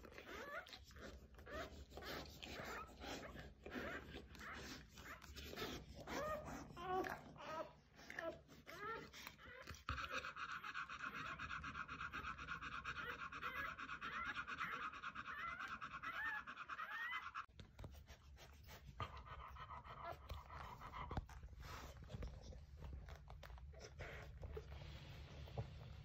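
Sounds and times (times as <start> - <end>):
dog panting: 0.0 - 26.0
puppies squeaking: 12.3 - 17.5.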